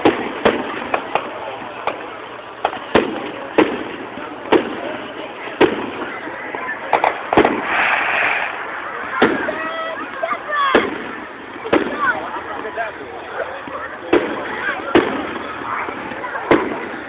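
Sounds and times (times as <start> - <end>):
firework shells bursting: 0.0 - 12.0.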